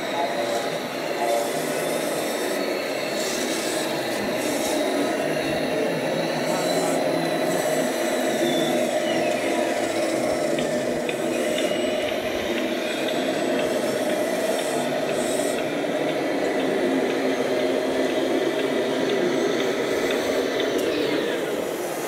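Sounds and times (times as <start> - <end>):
engine-like drone: 0.0 - 22.0
small electric motors whirring: 0.0 - 22.0.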